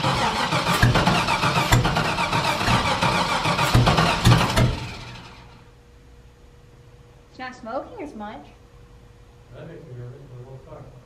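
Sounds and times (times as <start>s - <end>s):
starter motor cranking engine: 0.0s - 5.6s.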